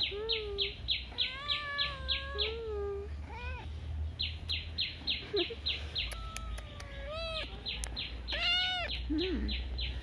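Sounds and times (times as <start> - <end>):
bird chirping: 0.0 - 2.6, 3.6 - 10.0
kitten meowing: 1.1 - 3.7, 6.0 - 7.5, 8.3 - 9.0.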